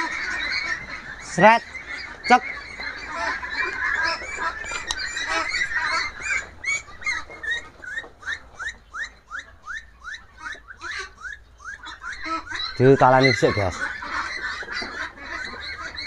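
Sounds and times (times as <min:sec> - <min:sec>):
ducks quacking: 0:00.0 - 0:16.0.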